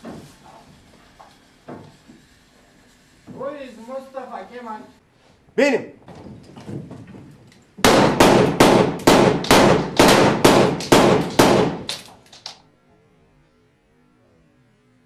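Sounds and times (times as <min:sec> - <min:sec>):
gunshots: 0:07.8 - 0:12.5.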